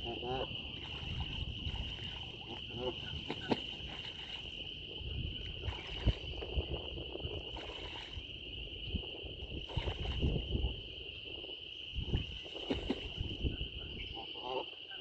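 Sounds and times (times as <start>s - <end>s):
geese splashing in water: 0.0s - 8.2s, 9.6s - 10.6s, 12.0s - 13.5s.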